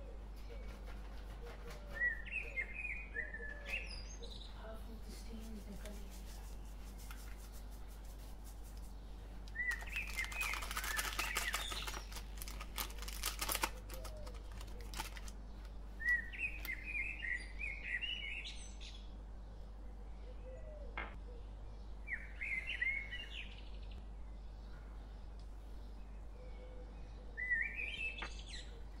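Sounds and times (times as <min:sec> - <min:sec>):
small birds chirping: 0:00.0 - 0:29.0
foil packet crinkling and clicking: 0:09.5 - 0:16.8.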